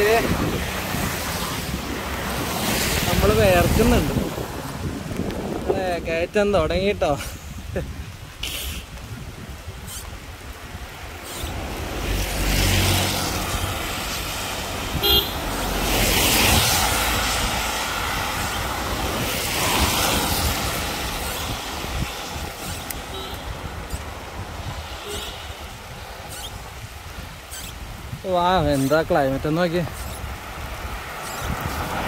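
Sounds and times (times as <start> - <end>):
tyres hissing on wet road: 0.0 - 32.0
car horn toot: 15.0 - 15.4, 23.1 - 23.5, 25.0 - 25.4.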